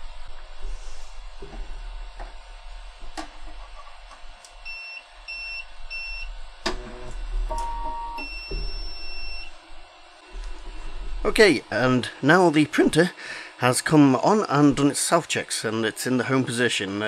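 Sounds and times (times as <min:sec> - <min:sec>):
printer motor whirr: 0:06.4 - 0:10.7
long beep: 0:07.5 - 0:09.5.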